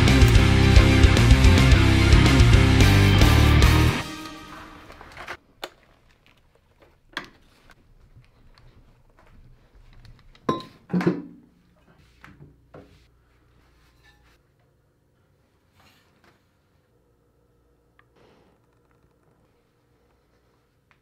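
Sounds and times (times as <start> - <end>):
rock music: 0.0 - 5.4.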